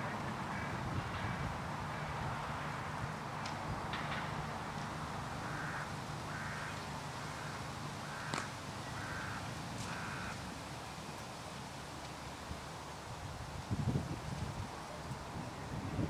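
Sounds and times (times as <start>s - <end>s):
bird calling: 5.4s - 10.4s.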